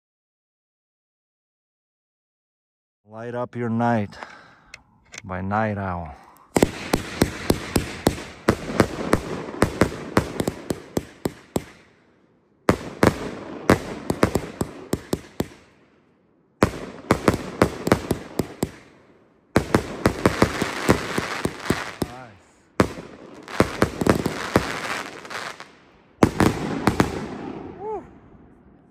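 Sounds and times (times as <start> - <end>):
firework bangs and crackling: 6.5 - 11.9, 12.7 - 15.8, 16.6 - 28.5.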